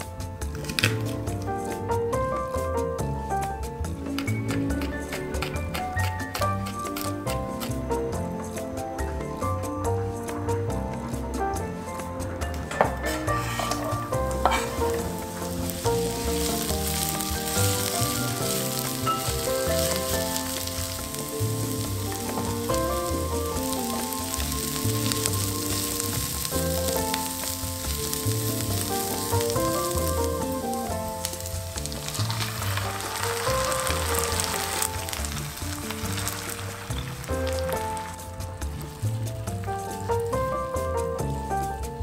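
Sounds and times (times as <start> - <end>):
background music: 0.0 - 42.0
onions sizzling in hot oil: 12.8 - 41.9.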